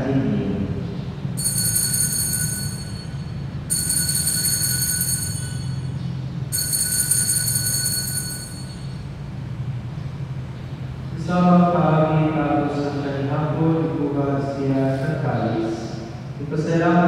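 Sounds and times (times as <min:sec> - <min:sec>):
bright high bell ringing: 0:01.4 - 0:09.2.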